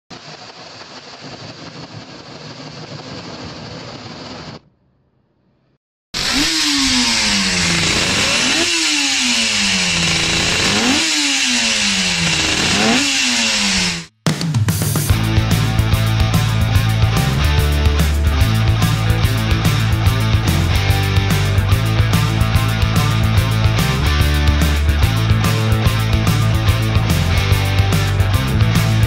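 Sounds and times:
racing engine revving: 0:06.2 - 0:14.1, 0:15.1 - 0:29.0.

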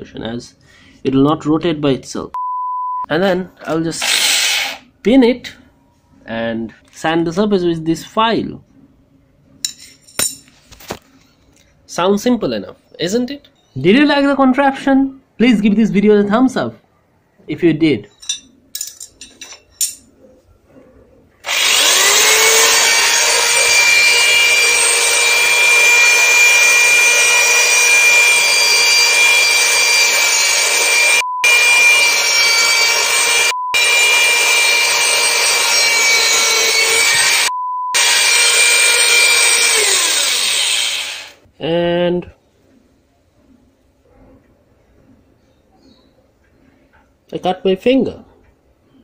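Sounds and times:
short beeps: 0:02.4 - 0:03.1, 0:33.5 - 0:33.8, 0:37.5 - 0:38.0
electric drill whining: 0:04.0 - 0:04.8, 0:21.4 - 0:41.4.

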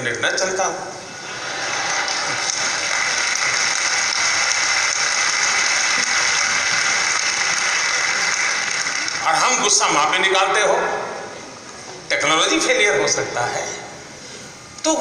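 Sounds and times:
audience applauding: 0:01.2 - 0:10.2.

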